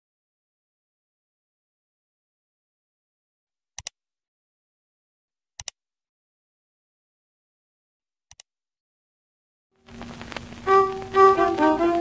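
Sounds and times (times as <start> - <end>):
mouse double click: 3.8 - 4.0.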